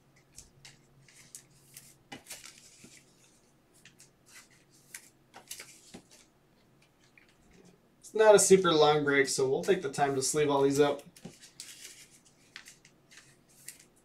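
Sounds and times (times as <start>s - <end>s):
faint steady hum: 0.0s - 14.0s
cards rustling and clicking: 0.2s - 7.6s, 11.0s - 14.0s.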